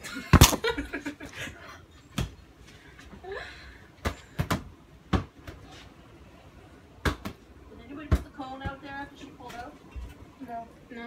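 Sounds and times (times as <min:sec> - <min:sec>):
ball being hit: 0:07.0 - 0:07.4.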